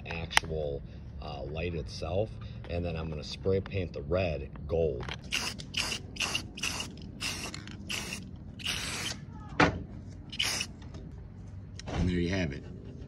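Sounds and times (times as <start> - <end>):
spray paint can hissing: 5.3 - 9.2, 10.3 - 10.7.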